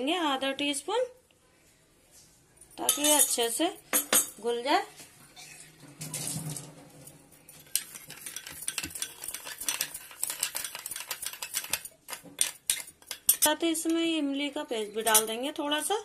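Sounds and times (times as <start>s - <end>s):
spoon clinking against glass bowl: 2.9s - 4.4s, 7.6s - 13.5s, 15.0s - 15.4s.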